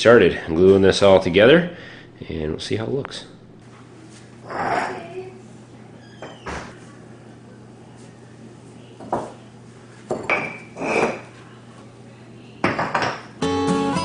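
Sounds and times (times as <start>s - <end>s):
acoustic guitar music: 13.4s - 14.0s.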